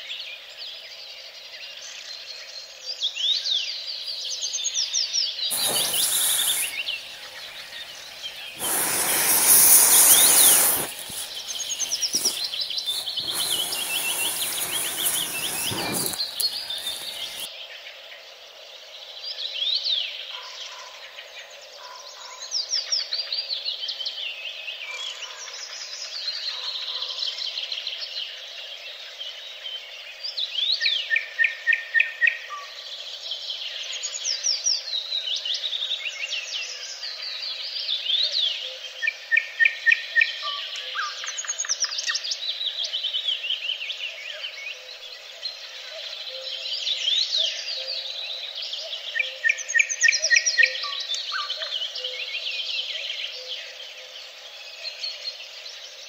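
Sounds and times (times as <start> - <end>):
songbirds singing: 0.0 - 26.8
bursts of rushing noise: 5.5 - 17.5.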